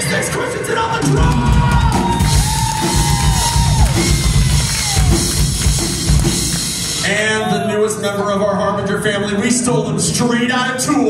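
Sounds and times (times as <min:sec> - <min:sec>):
drum kit: 0:00.9 - 0:07.2
bass guitar: 0:01.1 - 0:07.2.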